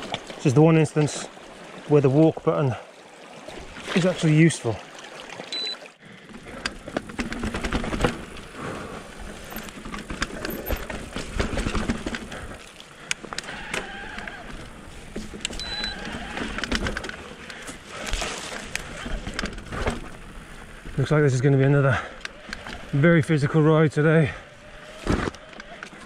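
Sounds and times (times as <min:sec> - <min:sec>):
short high beeps: 0:05.5 - 0:05.9, 0:15.6 - 0:16.0
crunching on rough ground: 0:06.4 - 0:20.6.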